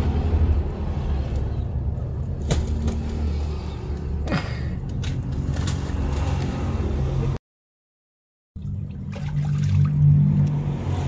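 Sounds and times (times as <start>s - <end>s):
low engine hum: 8.6s - 11.0s.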